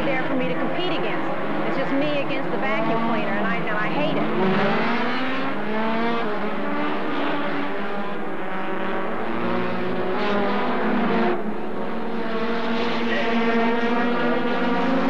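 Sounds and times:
cars rushing by: 0.0 - 15.0
racing car engines: 0.0 - 15.0.

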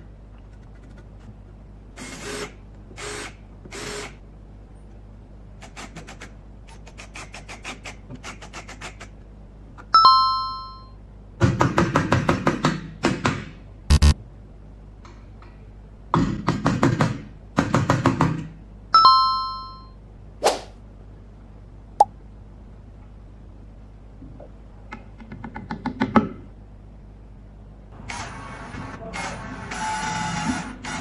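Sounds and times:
two-tone chime: 10.0 - 11.0, 19.0 - 20.0.

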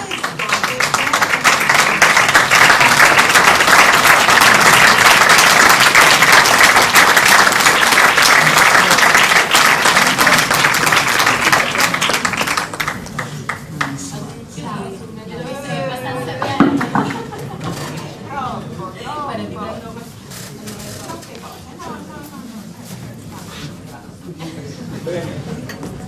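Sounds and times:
audience applause: 0.0 - 14.0.

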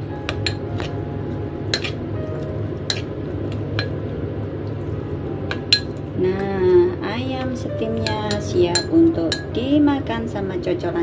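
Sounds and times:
low hum: 0.0 - 10.6
wet stirring in a bowl: 1.7 - 4.0.

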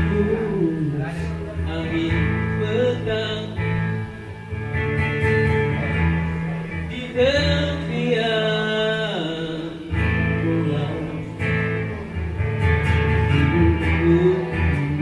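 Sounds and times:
acoustic guitar: 0.0 - 15.0
person singing: 13.3 - 15.0.

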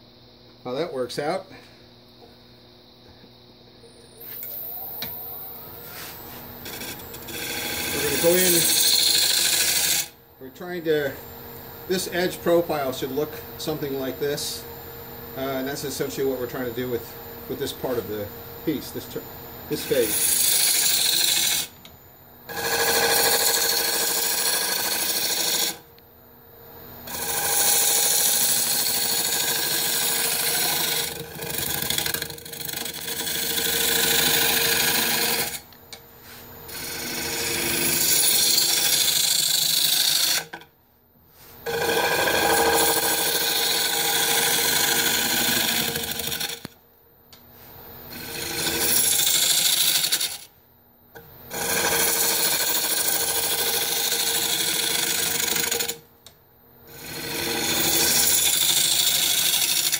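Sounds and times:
gouge cutting wood on lathe: 4.4 - 10.1, 19.8 - 21.7, 22.5 - 25.8, 27.1 - 35.6, 36.7 - 40.4, 41.7 - 46.7, 48.1 - 50.4, 51.5 - 56.0, 56.9 - 59.9.

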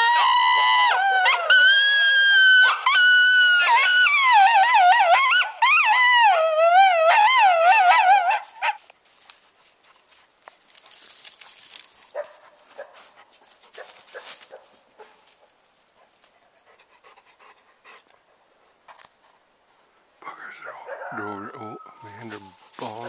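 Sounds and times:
coyotes howling and yipping: 0.0 - 8.9, 20.3 - 23.0
faint scattered sounds: 8.5 - 23.0.

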